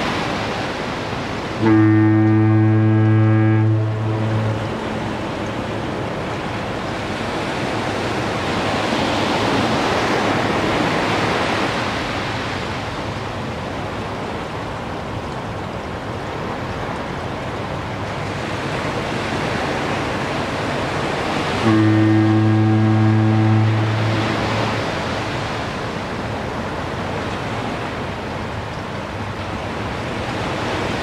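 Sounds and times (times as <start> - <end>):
low foghorn blast: 1.6 - 5.5, 21.5 - 25.1.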